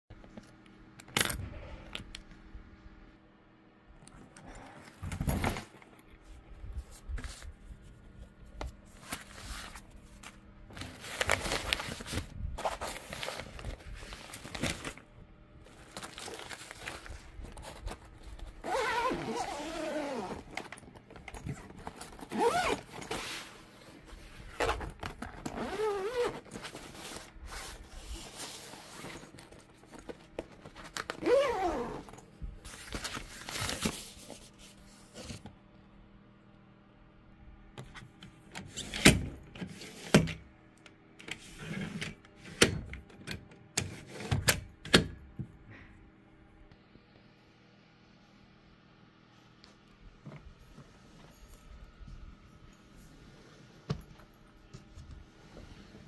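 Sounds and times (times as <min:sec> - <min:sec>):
nylon lining rustling: 0:15.7 - 0:20.8, 0:21.5 - 0:32.1
zipper running: 0:17.5 - 0:20.7, 0:21.4 - 0:23.3, 0:24.4 - 0:29.3, 0:31.1 - 0:32.2.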